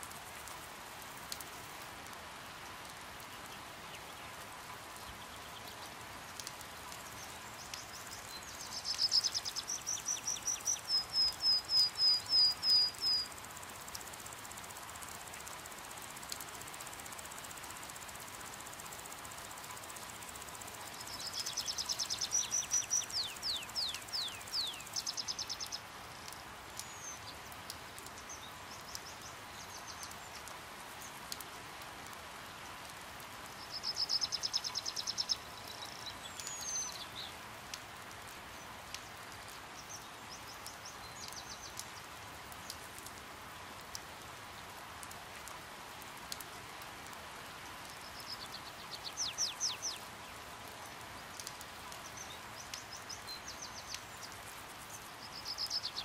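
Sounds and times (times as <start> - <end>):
light rain hiss: 0.0 - 56.0
hummingbirds twittering: 19.8 - 25.9.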